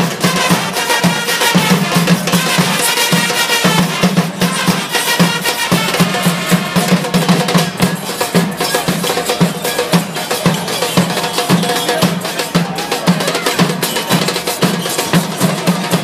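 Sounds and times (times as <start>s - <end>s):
trumpets playing a chant: 0.2s - 7.2s.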